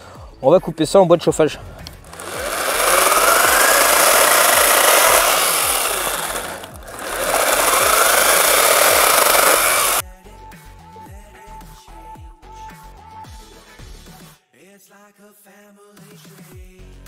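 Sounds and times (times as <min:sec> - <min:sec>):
cordless chainsaw cutting branch: 0:01.9 - 0:10.0.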